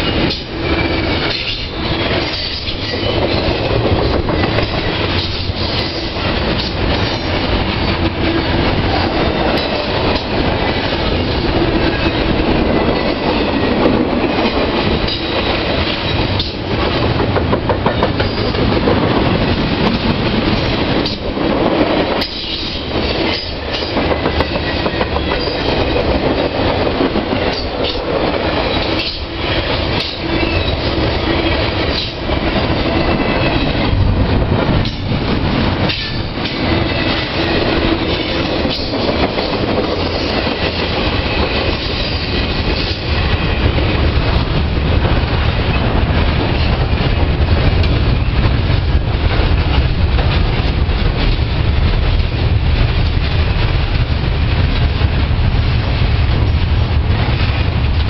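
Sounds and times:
freight train wheels rumbling on rail: 0.0s - 58.0s
wheels clicking over rail joints: 0.2s - 43.0s.

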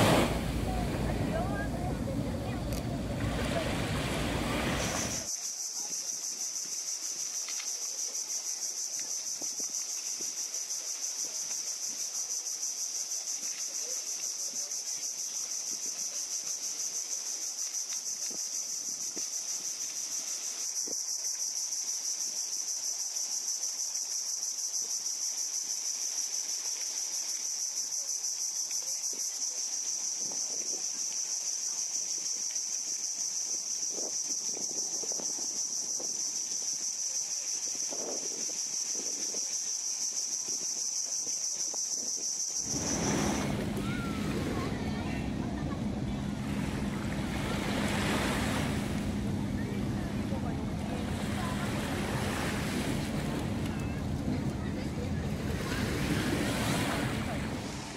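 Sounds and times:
surf washing ashore: 0.0s - 5.3s, 42.6s - 57.9s
wind buffeting microphone: 0.0s - 5.3s, 42.6s - 57.9s
small waves lapping on sand: 0.0s - 41.9s, 42.5s - 57.9s
high-pitched insect chorus: 0.0s - 57.9s.

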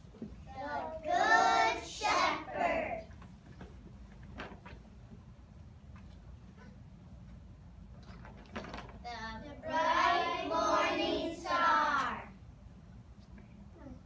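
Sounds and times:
young children singing: 0.6s - 3.1s, 9.6s - 12.3s.

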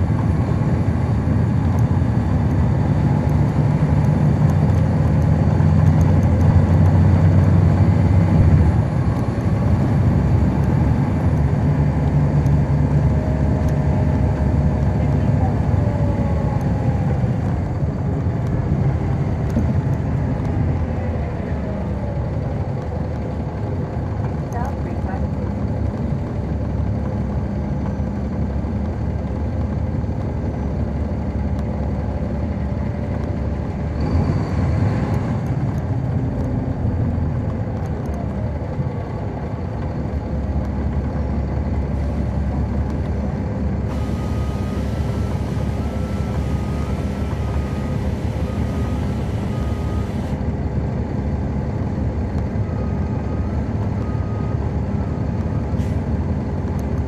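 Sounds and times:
bus diesel engine running: 0.0s - 57.0s
rushing noise: 43.7s - 50.6s.

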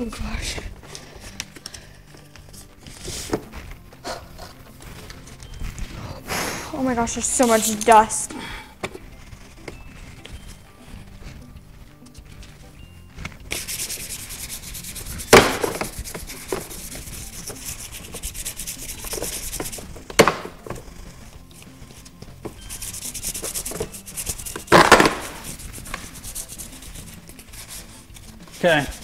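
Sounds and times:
sanding sponge scrubbing plastic: 13.5s - 21.3s, 21.9s - 29.0s.

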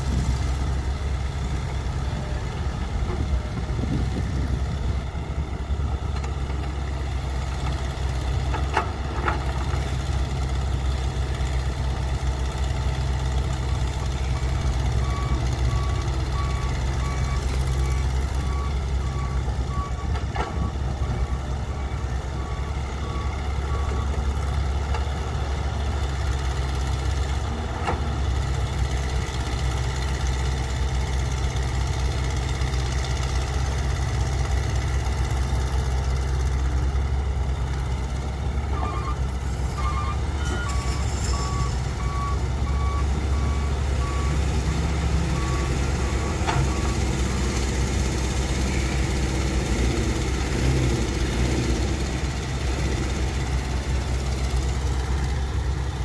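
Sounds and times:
diesel engines rumbling: 0.0s - 56.0s
reversing alarm beeping: 13.7s - 24.3s, 38.8s - 47.8s.

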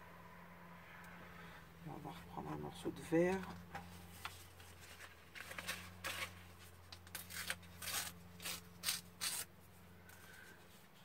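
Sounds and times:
paper ripping and rustling: 4.1s - 9.5s.

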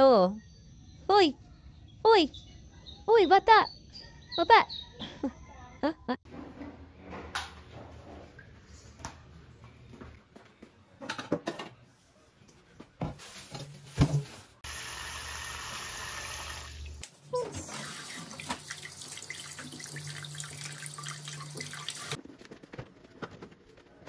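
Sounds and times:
faucet spray running water: 14.6s - 17.0s, 17.6s - 22.2s.

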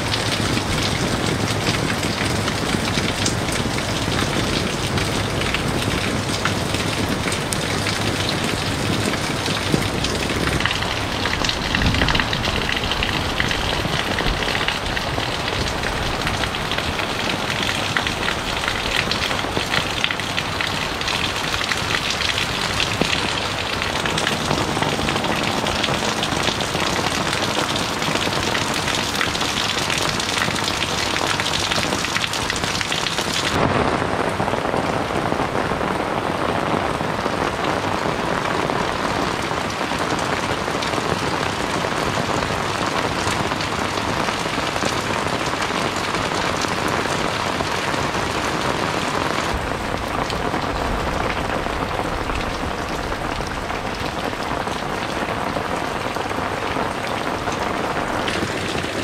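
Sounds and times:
rain on roofs and leaves: 0.0s - 59.0s
deep rumble: 22.3s - 28.1s, 49.4s - 55.5s.

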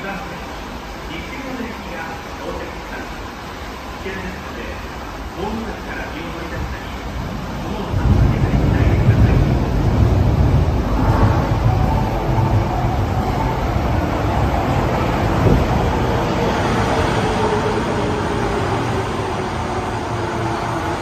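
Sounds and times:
wheels rumbling on rail: 6.5s - 21.0s.

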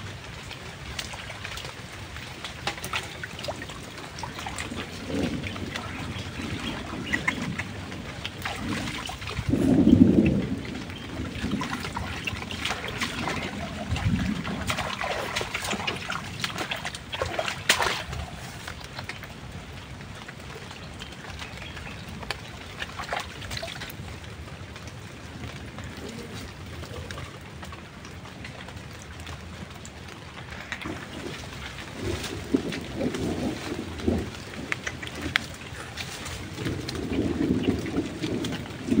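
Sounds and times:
steady rain: 0.0s - 39.0s
water trickling: 0.0s - 39.0s.

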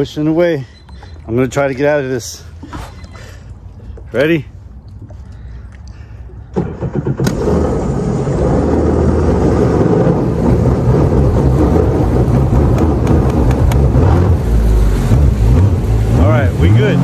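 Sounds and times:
jet pump churning water: 0.0s - 17.0s
jet ski engine throttled up: 6.4s - 17.0s.

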